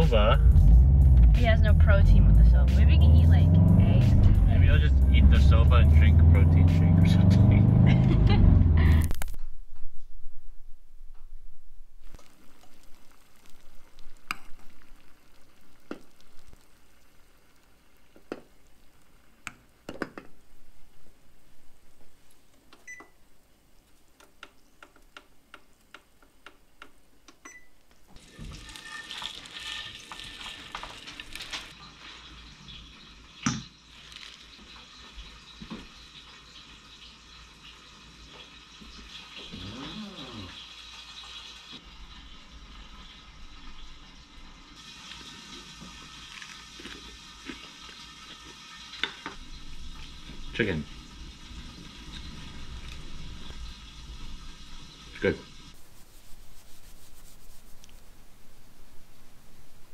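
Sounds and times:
pots and utensils clinking: 0:28.2 - 0:41.6
steady hiss: 0:48.0 - 0:59.9.

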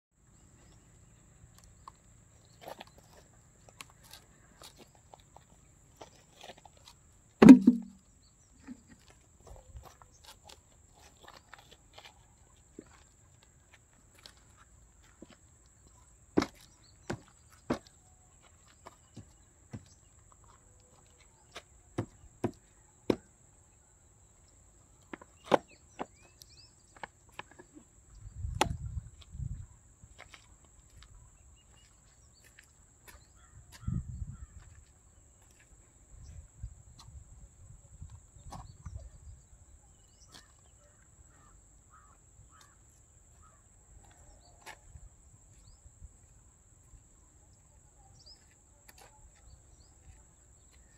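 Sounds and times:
sharp clicks and taps: 0:07.4 - 0:08.0.

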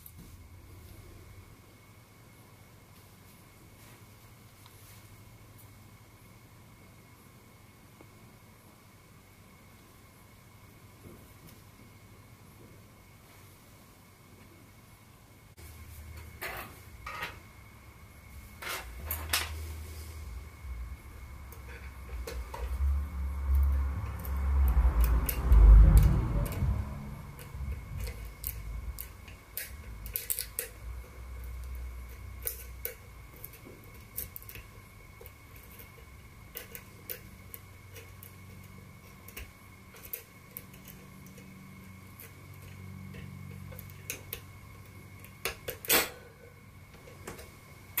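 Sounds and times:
lockpick metallic clicks and scrapes: 0:27.3 - 0:46.2.

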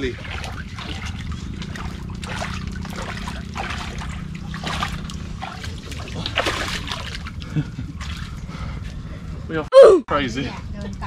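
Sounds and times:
shallow river water splashing: 0:00.0 - 0:08.8
steady low hum: 0:00.0 - 0:11.0.

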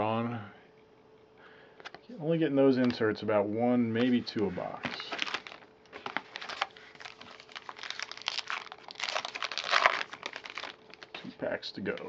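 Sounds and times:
wrapper tearing and crinkling: 0:04.8 - 0:11.2.

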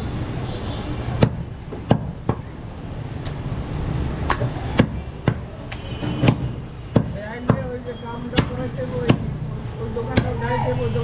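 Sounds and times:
cleaver chopping on wooden block: 0:01.2 - 0:02.5, 0:06.1 - 0:07.7, 0:08.4 - 0:09.4.

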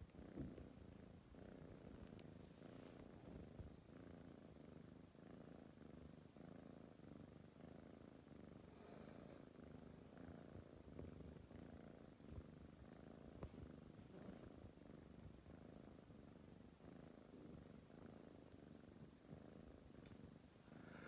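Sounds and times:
kitten purring faintly: 0:00.0 - 0:21.0
faint clicks: 0:20.0 - 0:20.2.

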